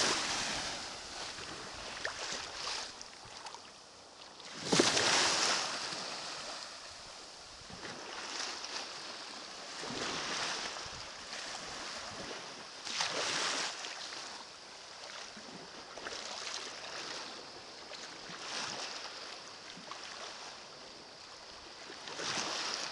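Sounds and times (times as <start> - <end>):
waves washing over pebbles: 0.0 - 3.1, 4.5 - 7.4.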